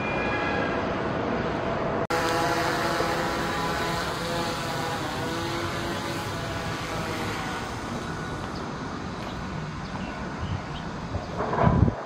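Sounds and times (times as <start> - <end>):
rushing vehicle noise: 0.0 - 12.0
faint engine hum: 2.1 - 11.6.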